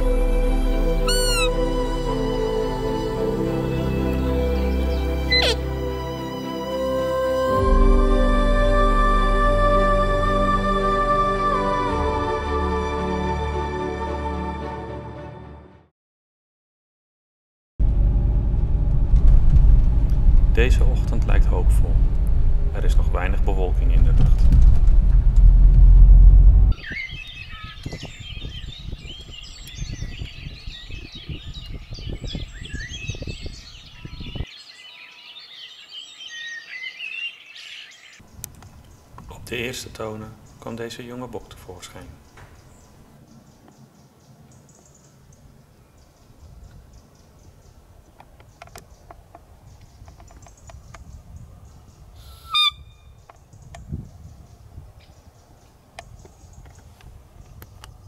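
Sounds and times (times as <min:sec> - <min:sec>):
deer call squeak: 0:01.0 - 0:01.6, 0:05.3 - 0:05.6, 0:52.2 - 0:53.1
high chirps: 0:01.0 - 0:01.7, 0:05.0 - 0:05.7, 0:52.2 - 0:53.2
songbirds chirping and warbling: 0:01.1 - 0:01.6, 0:02.6 - 0:06.4, 0:26.7 - 0:58.0
car engine and road rumble: 0:17.8 - 0:26.8
low rumble: 0:17.8 - 0:26.8.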